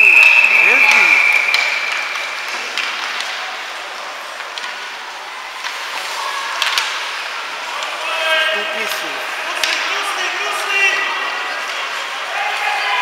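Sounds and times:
skates scraping on ice: 0.9 - 8.1
sticks and puck clicking: 1.5 - 3.4, 4.3 - 5.0, 5.6 - 8.0, 9.6 - 9.9.

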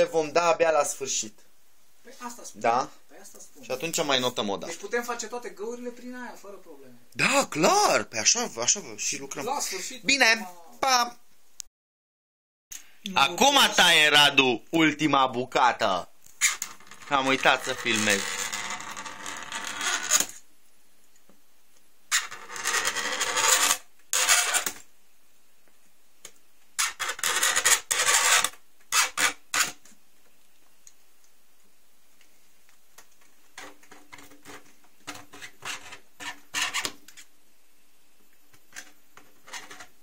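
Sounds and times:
cutter scoring plastic sheet: 22.1 - 24.8, 26.8 - 29.8.

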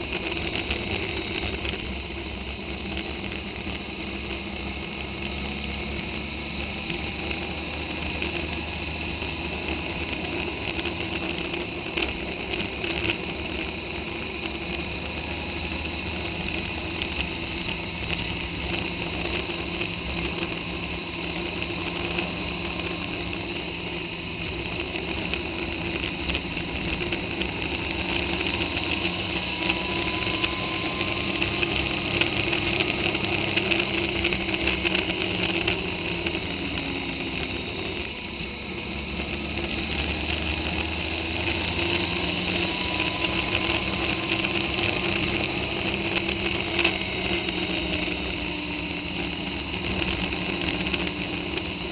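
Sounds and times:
motorcycle engine: 0.0 - 51.9
small clicks and knocks: 39.2 - 51.9.

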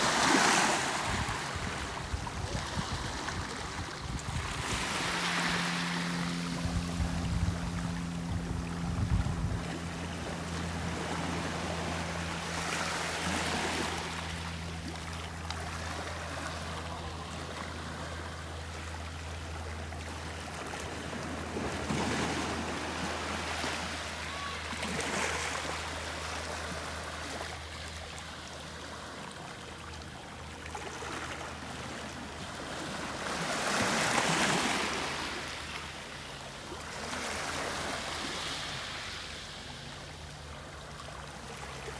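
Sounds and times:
waves washing over pebbles: 0.0 - 18.5
steady low hum: 0.8 - 33.4.

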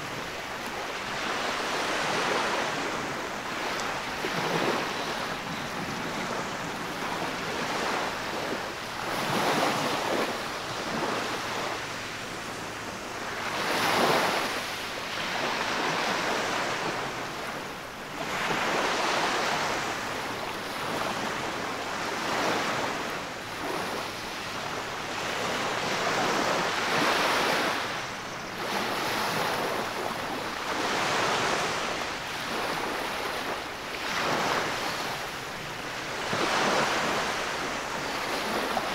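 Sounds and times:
small waves breaking on beach: 0.0 - 38.9.

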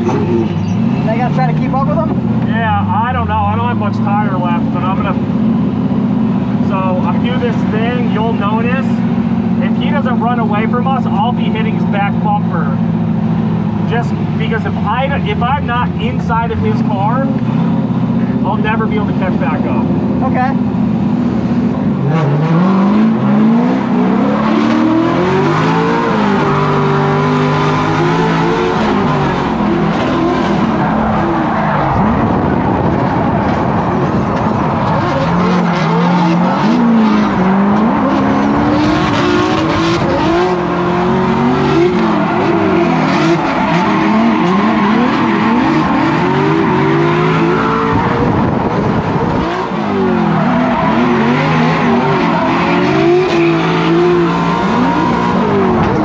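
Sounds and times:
car engine revving: 0.0 - 56.0
tires skidding and squealing: 22.0 - 56.0.

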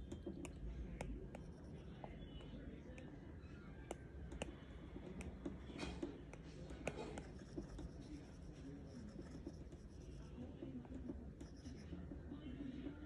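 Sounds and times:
stylus tapping on glass screen: 0.0 - 1.6
faint background noise: 0.0 - 13.0.

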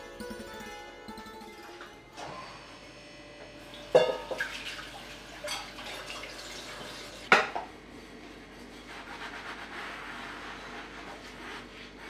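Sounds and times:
bowl clattering against dishes: 3.9 - 4.6.

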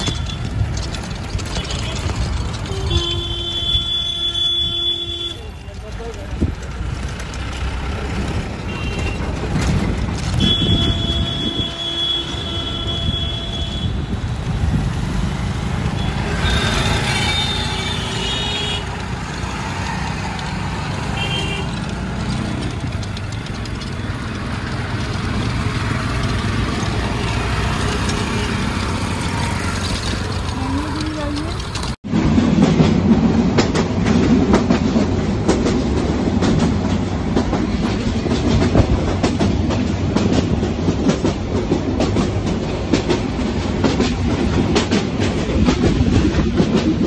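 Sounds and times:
traffic engines rumbling: 0.0 - 47.0
vehicle horns honking: 2.6 - 5.6, 8.7 - 9.3, 10.2 - 14.0, 15.9 - 18.9, 21.1 - 21.8.

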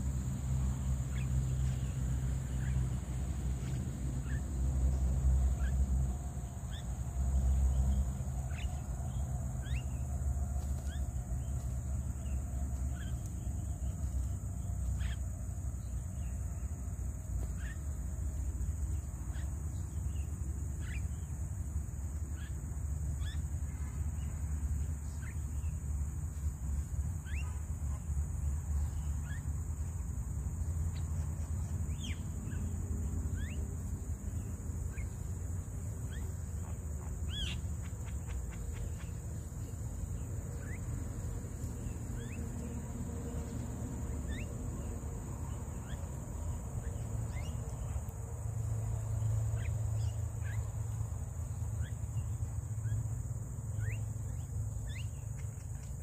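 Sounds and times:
insect drone: 0.0 - 56.0.

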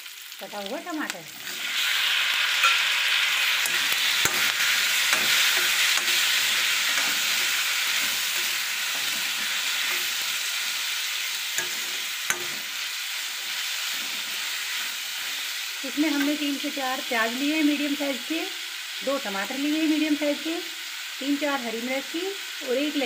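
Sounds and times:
tomatoes sizzling in hot oil: 0.0 - 23.0
metal spoon scraping pan: 1.4 - 15.5.

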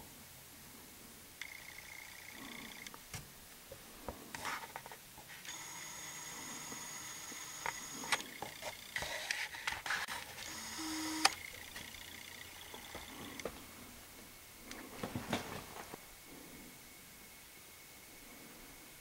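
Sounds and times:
zoom motor whine: 5.4 - 13.5
camera handling clicks and rustles: 7.3 - 11.9.

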